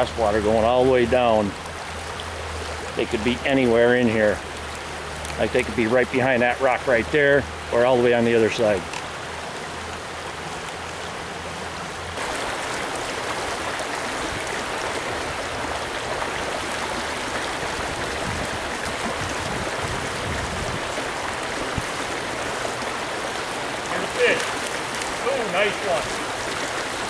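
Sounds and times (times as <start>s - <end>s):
water rushing over rocks: 0.0s - 27.0s.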